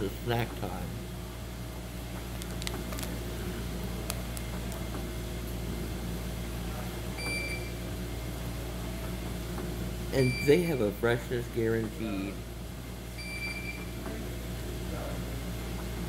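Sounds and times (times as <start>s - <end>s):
machinery humming: 0.0s - 16.0s.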